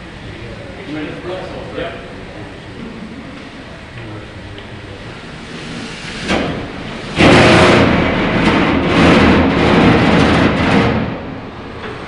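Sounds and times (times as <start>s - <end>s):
steam hissing through engine: 0.0s - 9.4s
steam puff: 5.4s - 8.5s.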